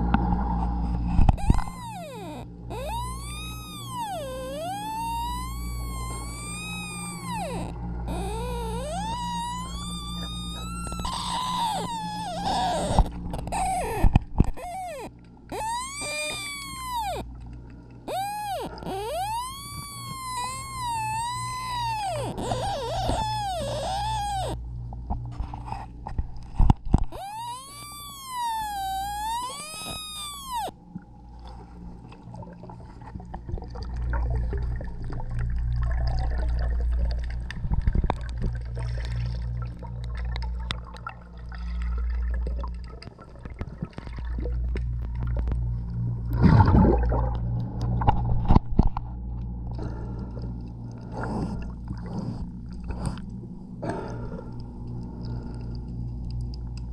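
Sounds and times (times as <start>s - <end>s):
underwater low drone: 0.0s - 56.9s
bubbling: 1.2s - 24.6s, 26.2s - 48.8s
wavering whistle: 1.4s - 13.0s, 14.6s - 17.2s, 18.1s - 24.6s, 27.1s - 30.7s.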